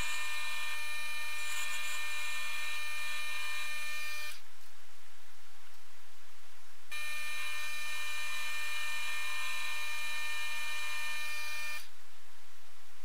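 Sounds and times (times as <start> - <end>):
lathe motor whine: 0.0 - 4.4, 7.0 - 11.9.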